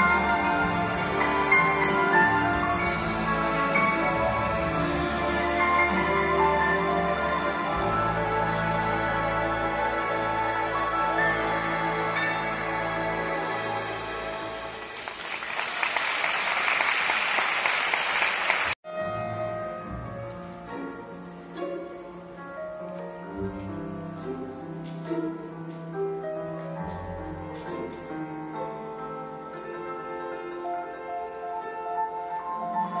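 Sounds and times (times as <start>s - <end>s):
grand piano melody: 0.0s - 14.9s, 18.8s - 33.0s
string ensemble: 0.0s - 33.0s
audience applause: 14.7s - 18.8s.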